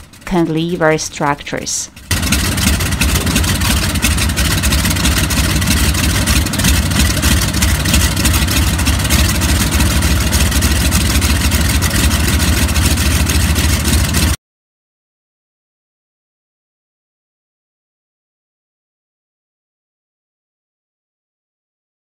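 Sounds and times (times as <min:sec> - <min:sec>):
radial piston engine idling: 0:01.9 - 0:14.4.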